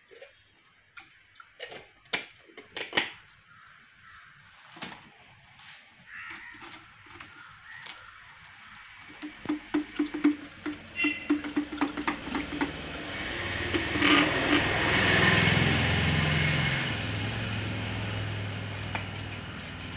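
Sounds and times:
plastic jars knocking and clicking: 1.0s - 3.3s, 9.0s - 14.7s.

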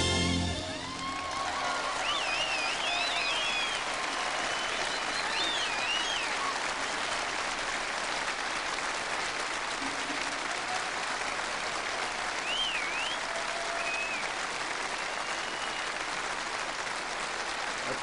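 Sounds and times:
audience applauding: 0.0s - 18.0s
high whistle: 2.0s - 3.8s, 4.5s - 6.4s, 12.4s - 14.3s, 15.1s - 15.9s.

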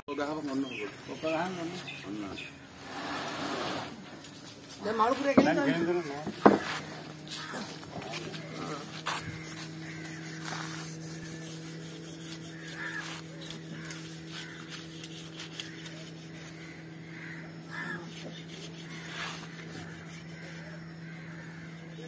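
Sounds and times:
steady low hum: 0.1s - 22.0s
short harsh calls: 4.8s - 22.0s
scattered knocks: 5.3s - 6.7s.

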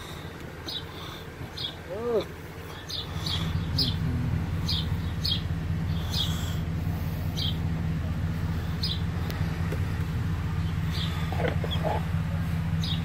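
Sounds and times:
bird chirping: 0.0s - 6.6s, 7.2s - 7.7s, 8.5s - 9.6s, 10.4s - 12.1s, 12.7s - 13.0s
low machine hum: 0.0s - 13.0s.

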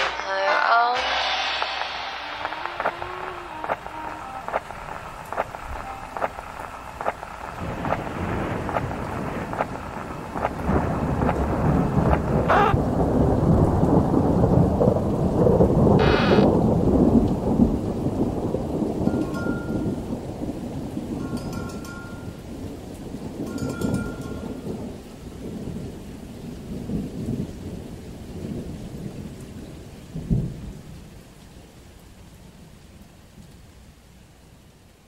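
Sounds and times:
brief high-pitched sounds: 0.0s - 7.0s, 12.5s - 12.8s, 16.0s - 16.5s
rain: 0.0s - 35.0s
rolling thunder: 1.2s - 30.9s
sharp ticks: 2.6s - 12.8s.

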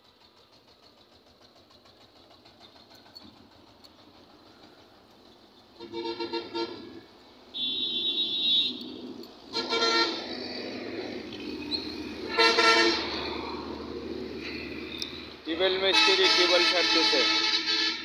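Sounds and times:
road traffic: 0.0s - 18.0s
vehicle horns honking: 5.8s - 8.9s, 9.5s - 10.4s, 12.2s - 13.4s, 15.7s - 18.0s.

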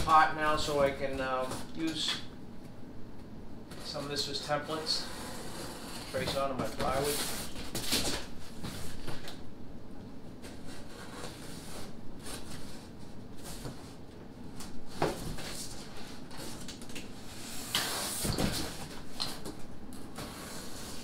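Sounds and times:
cardboard rustling and scraping: 10.4s - 19.4s
loud tape rips: 17.6s - 18.5s.

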